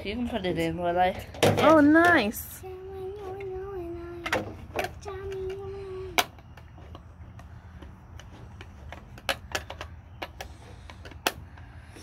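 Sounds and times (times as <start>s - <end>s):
plastic parts clicking and tapping: 4.2s - 11.7s.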